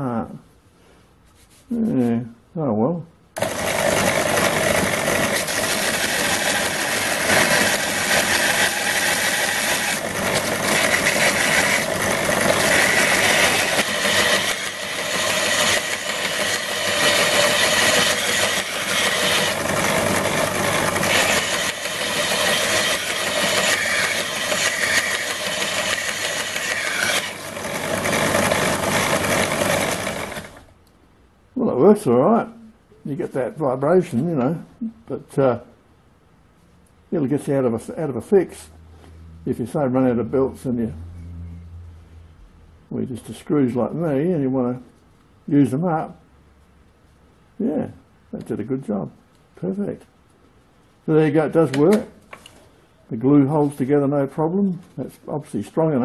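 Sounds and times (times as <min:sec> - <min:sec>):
belt grinder grinding steel rod: 0:03.4 - 0:30.6.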